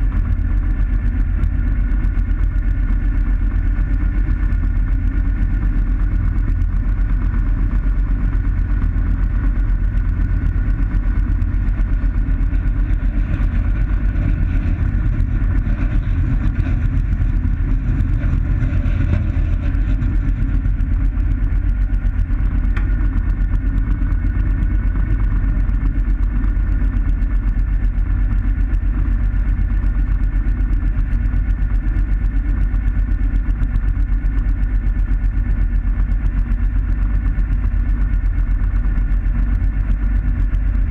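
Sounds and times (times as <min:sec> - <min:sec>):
propeller engine humming: 0:00.0 - 0:40.9.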